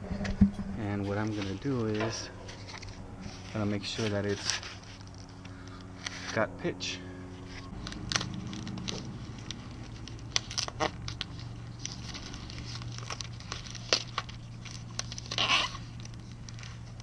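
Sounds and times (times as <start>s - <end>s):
low hum: 0.0s - 17.0s
tape crinkling: 1.2s - 6.4s, 7.4s - 17.0s
tape tearing: 1.3s - 5.4s, 7.5s - 17.0s.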